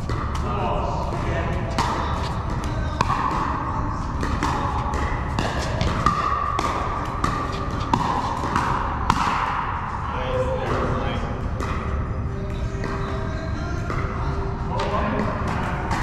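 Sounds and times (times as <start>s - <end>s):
paddles hitting plastic ball: 0.0s - 9.8s, 14.8s - 16.0s
indoor hall background noise: 0.0s - 16.0s.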